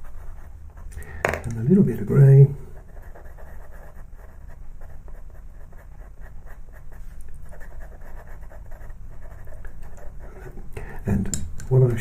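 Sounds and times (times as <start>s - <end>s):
pencil scratching on paper: 0.0s - 0.9s, 2.8s - 10.4s
low steady hum: 0.0s - 12.0s.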